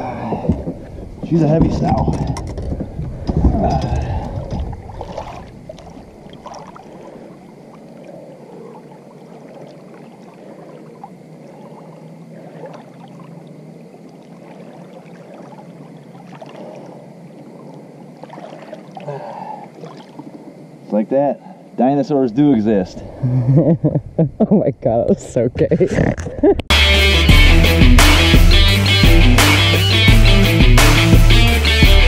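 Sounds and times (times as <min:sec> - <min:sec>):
water lapping against a boat: 0:00.0 - 0:21.8.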